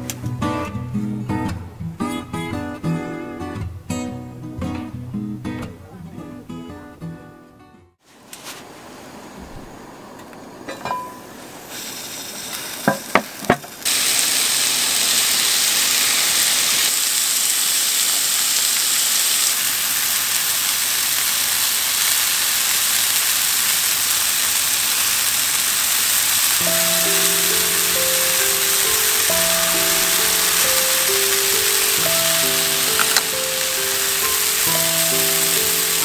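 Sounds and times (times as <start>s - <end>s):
metallic clanks of cookware: 10.7s - 11.3s
meat sizzling in a pan: 11.0s - 36.0s.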